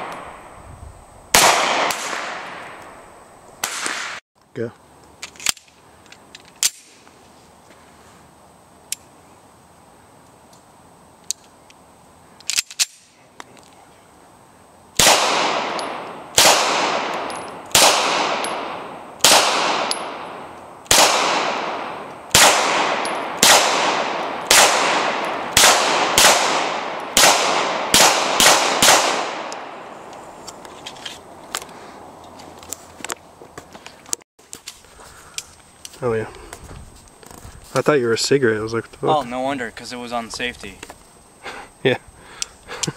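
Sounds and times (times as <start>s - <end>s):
pistol shots echoing: 1.3s - 2.8s, 15.0s - 29.9s.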